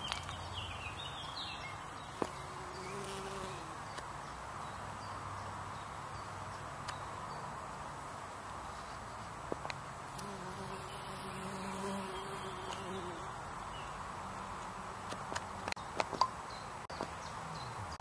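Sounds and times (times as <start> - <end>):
bees buzzing: 2.0 - 3.9, 10.1 - 15.8.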